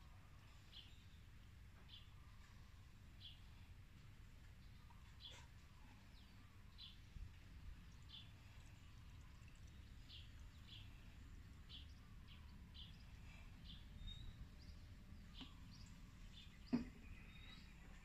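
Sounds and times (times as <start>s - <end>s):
low steady hum: 0.0s - 18.0s
faint bird chirps: 7.9s - 18.0s.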